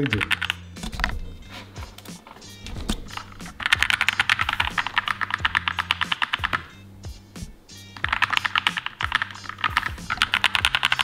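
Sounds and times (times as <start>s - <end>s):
mechanical keyboard typing: 0.0s - 1.2s, 3.1s - 6.7s, 8.0s - 11.0s.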